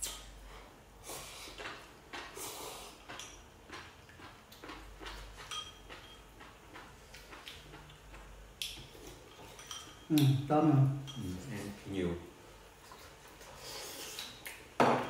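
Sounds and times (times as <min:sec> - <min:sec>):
soft eating noises: 0:00.0 - 0:14.8
chopsticks clicking on bowls: 0:03.1 - 0:10.5.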